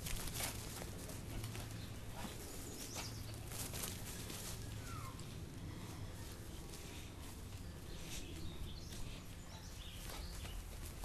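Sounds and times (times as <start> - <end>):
dog running on grass: 0.0 - 5.3
bird chirping: 1.6 - 3.6, 4.2 - 5.4, 7.5 - 10.8.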